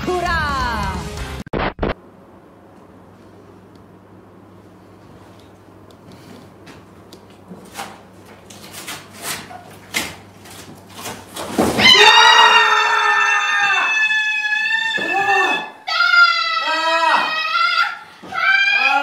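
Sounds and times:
woman shrieking: 0:11.8 - 0:19.0.

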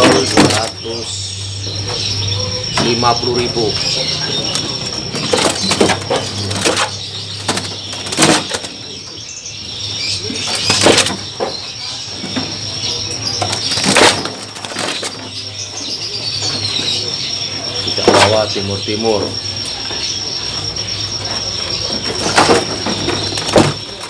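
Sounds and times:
birds fluttering wings against cage: 0:03.7 - 0:08.9, 0:13.3 - 0:15.5.

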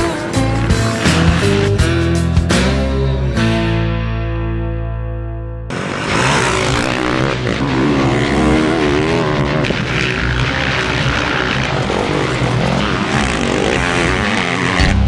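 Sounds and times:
motocross bike engines revving: 0:00.0 - 0:02.4, 0:05.7 - 0:15.0.

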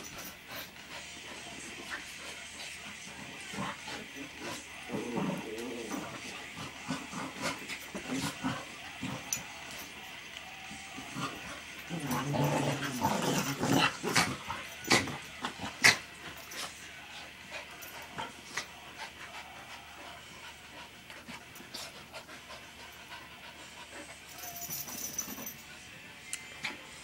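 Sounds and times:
puppies panting and scuffling: 0:00.0 - 0:10.0, 0:10.7 - 0:27.0
dog growling: 0:00.4 - 0:09.8, 0:10.8 - 0:22.8.

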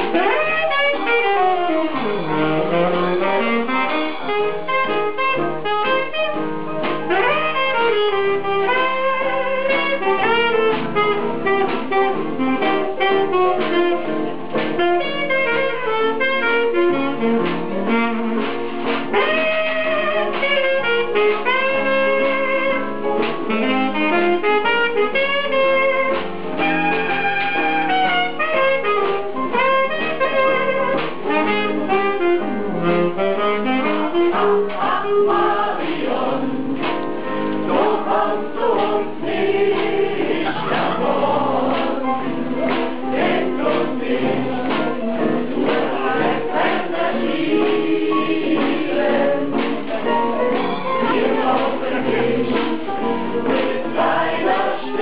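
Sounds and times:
steady beat: 0:00.0 - 0:55.0
music with singing: 0:32.4 - 0:55.0.

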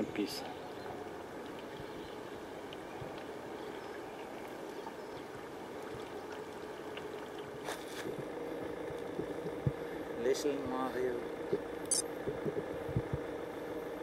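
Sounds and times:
steady low hum: 0:00.0 - 0:14.0
sharp clicks: 0:11.8 - 0:12.0.

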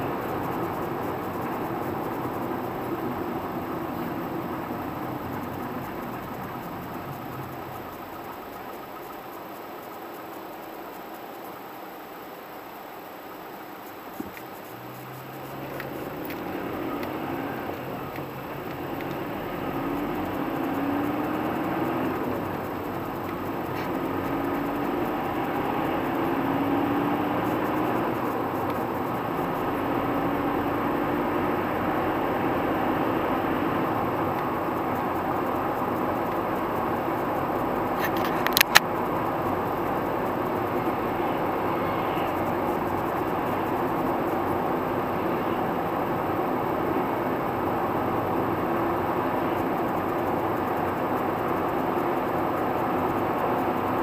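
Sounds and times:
car engine and road noise: 0:00.0 - 0:54.0
faint rising hum: 0:12.4 - 0:38.0.

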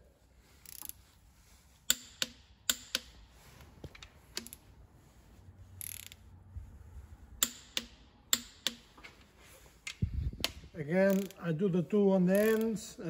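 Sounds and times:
torque wrench clicking: 0:01.9 - 0:03.2, 0:04.0 - 0:04.6, 0:05.8 - 0:06.2, 0:07.4 - 0:08.9, 0:09.9 - 0:11.4, 0:12.4 - 0:12.8.

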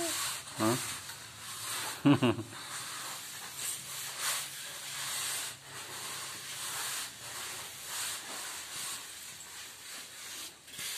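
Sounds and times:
soil scraping on earthen floor: 0:00.0 - 0:10.9.

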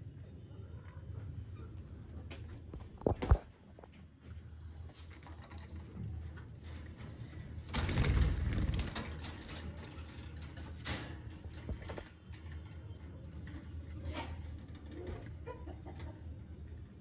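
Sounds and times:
wire birdcage rattling: 0:05.2 - 0:16.9.

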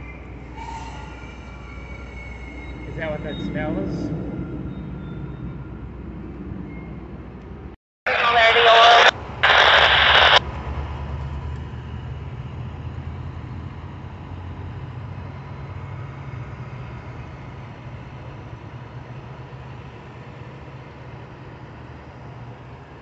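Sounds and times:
loud noisy sound: 0:08.1 - 0:10.4.

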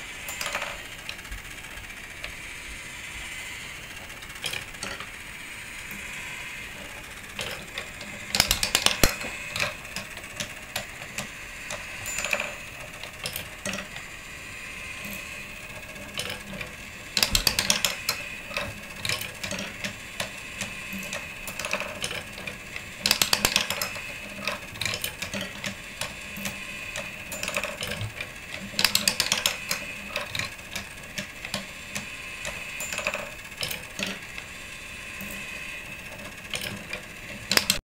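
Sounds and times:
rapid marble clattering: 0:00.2 - 0:02.4, 0:03.4 - 0:37.8
marbles clacking on wooden tracks: 0:06.8 - 0:14.0, 0:16.2 - 0:34.3.

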